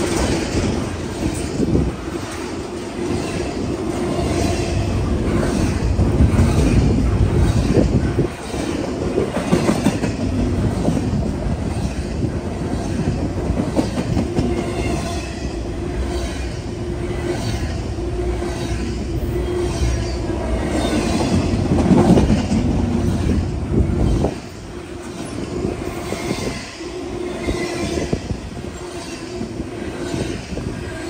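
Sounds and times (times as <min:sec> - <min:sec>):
clacking over rail joints: 0:00.0 - 0:15.3, 0:20.8 - 0:25.4
freight train wheels rumbling: 0:00.0 - 0:31.0.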